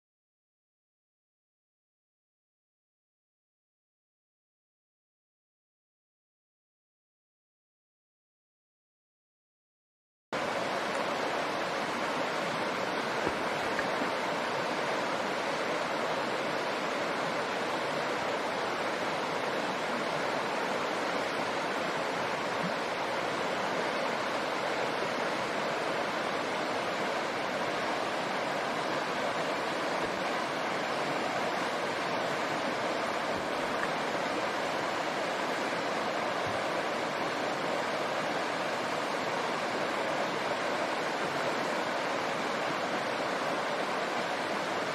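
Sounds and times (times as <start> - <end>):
river rushing over rocks: 10.4 - 44.9.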